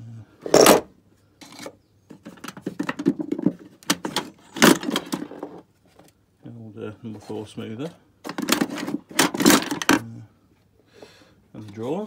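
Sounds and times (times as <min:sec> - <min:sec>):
tools clunking and rattling: 0:00.4 - 0:05.6, 0:08.2 - 0:10.0.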